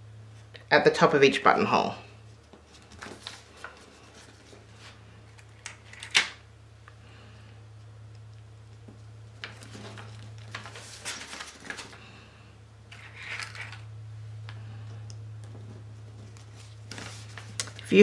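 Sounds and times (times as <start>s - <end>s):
paper rustling: 2.3s - 6.2s, 9.4s - 12.1s, 12.9s - 13.8s, 15.6s - 18.0s.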